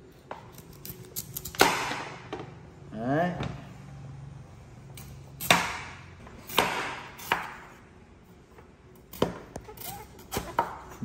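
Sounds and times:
knife cutting pumpkin rind: 9.2 - 11.0.

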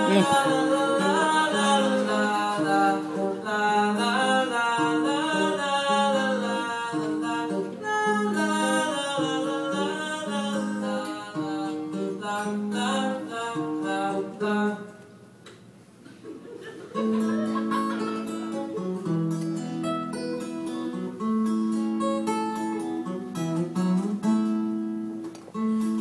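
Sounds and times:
man singing wordless melody: 0.0 - 15.0
acoustic guitar: 0.0 - 26.0.

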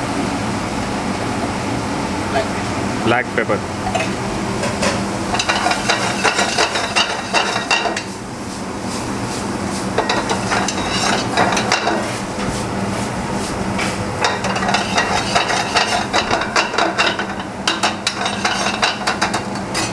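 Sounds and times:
vegetables sizzling in a frying pan: 5.0 - 19.0
metal spoon scraping a pan: 5.3 - 8.1, 10.0 - 12.0, 14.2 - 19.9.

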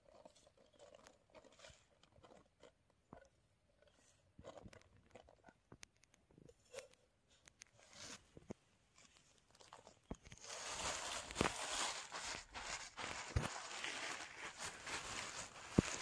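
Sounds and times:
rustle of grain and crinkling sack: 9.0 - 16.0.

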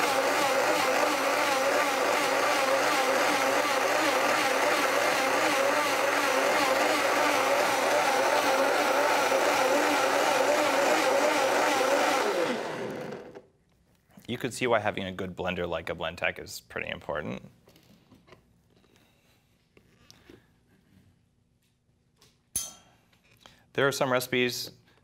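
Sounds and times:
blender running: 0.0 - 13.4.

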